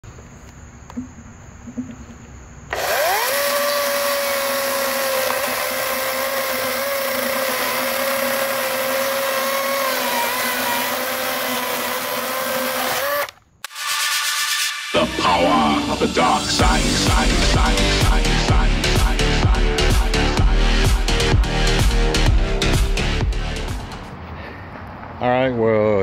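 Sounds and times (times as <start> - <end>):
chainsaw cutting log: 2.7 - 13.8.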